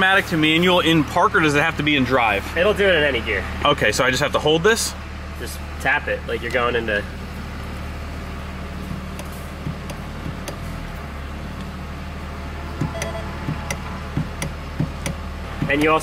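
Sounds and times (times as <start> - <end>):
diesel engine idling: 0.0 - 16.0
shift paddle clicks: 9.1 - 10.6, 12.9 - 13.8, 14.4 - 15.2.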